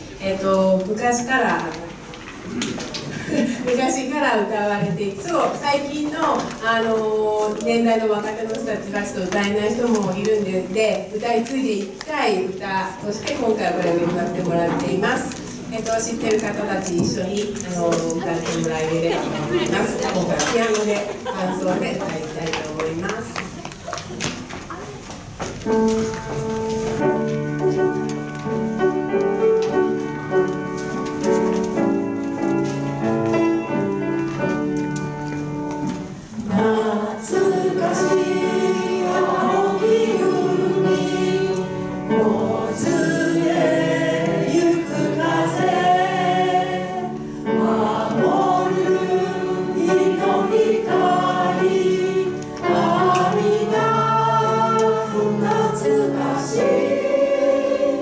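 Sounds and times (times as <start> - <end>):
piano chords: 12.4 - 23.4, 25.3 - 58.0
group of voices singing: 36.4 - 58.0.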